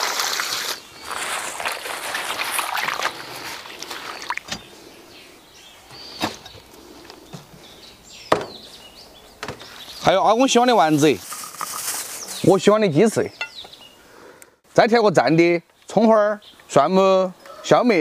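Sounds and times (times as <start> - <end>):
water sloshing in bowl: 0.0 - 4.6.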